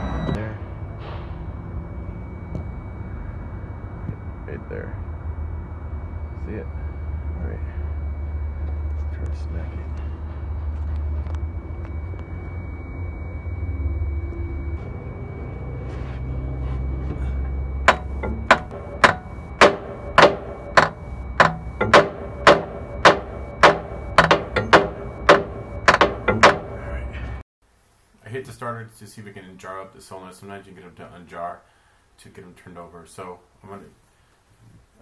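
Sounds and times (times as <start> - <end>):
low steady rumble: 0.0 - 27.4
hammer knocks on metal: 17.9 - 26.8.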